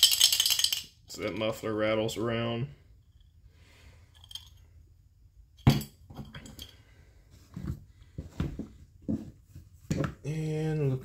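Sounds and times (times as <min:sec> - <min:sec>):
metal parts clinking and knocking: 0:00.0 - 0:01.5, 0:04.1 - 0:04.7, 0:05.6 - 0:06.8.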